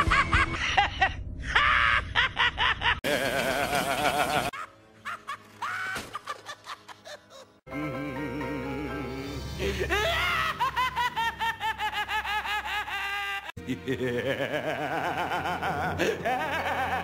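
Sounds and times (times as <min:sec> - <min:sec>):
cartoon laugh: 0:00.0 - 0:07.6, 0:09.7 - 0:17.0
background music: 0:03.0 - 0:17.0.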